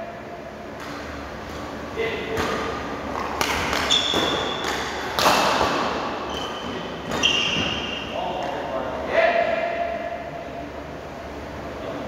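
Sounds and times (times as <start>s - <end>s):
rackets striking shuttlecock: 2.3s - 6.0s
shoes squeaking on court floor: 3.2s - 5.1s, 6.2s - 8.2s.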